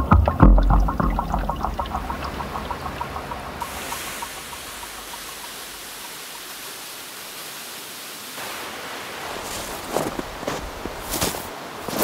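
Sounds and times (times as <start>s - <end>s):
faint rhythmic music: 0.0s - 6.3s
waterfall rushing: 0.0s - 10.8s
footsteps crunching in snow: 9.3s - 12.0s.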